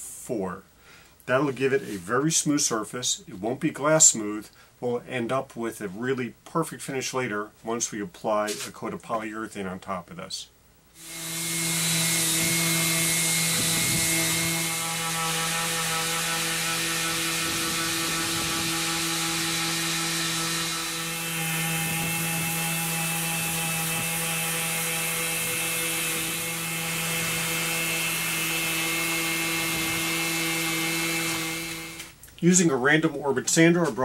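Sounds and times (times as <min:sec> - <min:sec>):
orbital sander humming: 0:11.0 - 0:32.2.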